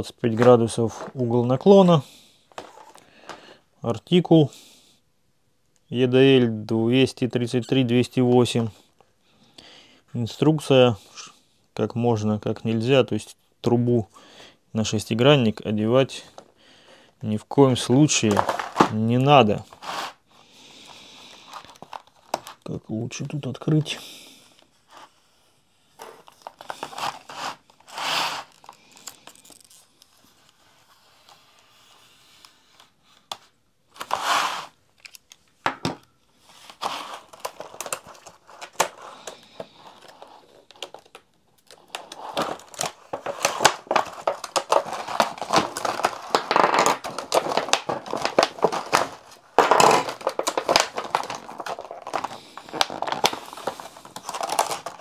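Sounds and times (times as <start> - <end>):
plastic packaging crinkling: 17.8 - 20.2, 21.2 - 22.7, 26.0 - 30.2, 36.5 - 55.0.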